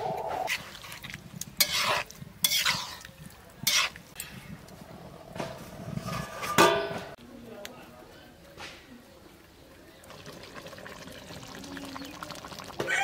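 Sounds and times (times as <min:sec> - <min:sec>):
stirring and scraping in a pot: 0:00.3 - 0:07.2.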